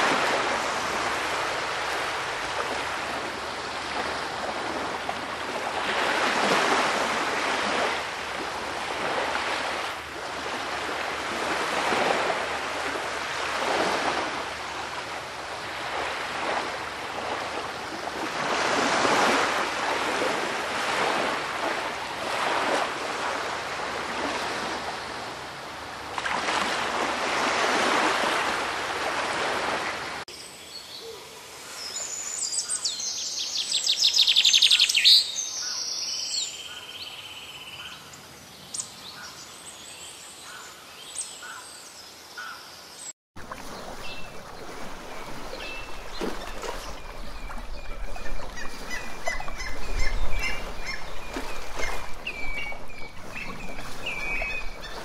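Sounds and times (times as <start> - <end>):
small surf breaking on beach: 0.0 - 25.4, 26.1 - 30.3, 43.4 - 55.0.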